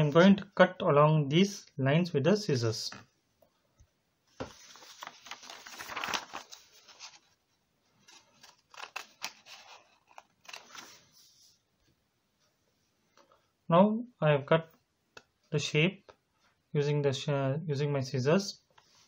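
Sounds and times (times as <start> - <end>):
scissors snipping paper: 8.4 - 10.6.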